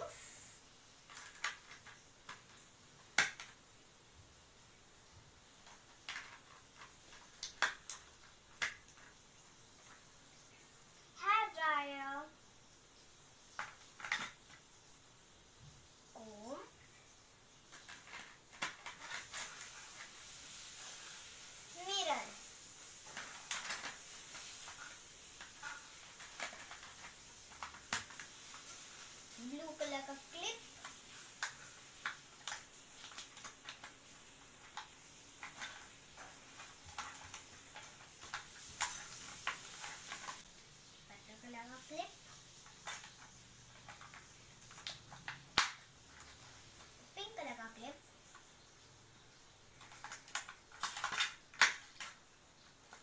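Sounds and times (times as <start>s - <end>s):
plastic pieces clicking and tapping: 1.0s - 3.7s, 5.5s - 10.0s, 13.5s - 14.7s, 17.6s - 21.4s, 22.9s - 40.5s, 42.2s - 48.5s, 49.7s - 53.0s.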